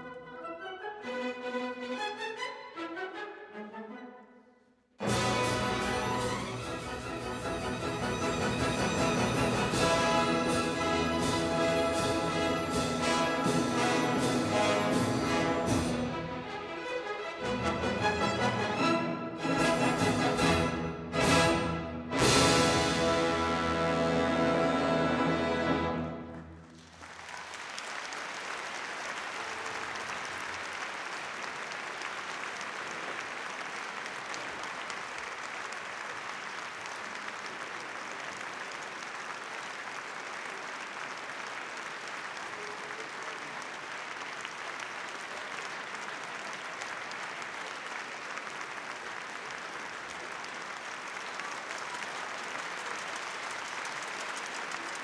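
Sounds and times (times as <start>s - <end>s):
audience applause: 22.2s - 55.0s.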